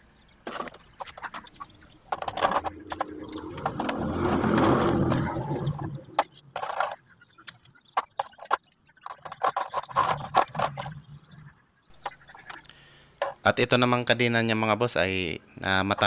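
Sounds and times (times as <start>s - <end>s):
loud rough noise: 2.3s - 6.2s.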